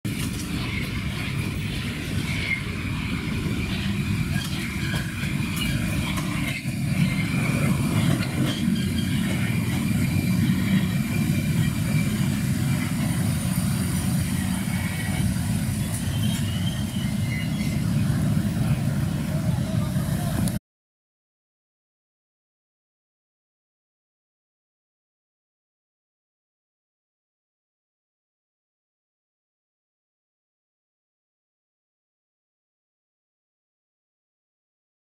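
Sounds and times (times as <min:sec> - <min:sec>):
train wheels rumbling: 0:00.1 - 0:20.6.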